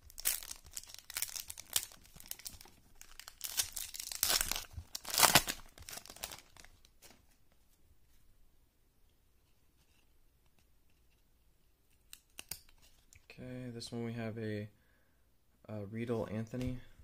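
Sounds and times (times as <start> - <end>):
foil wrapper crinkling and tearing: 0.0 - 6.9.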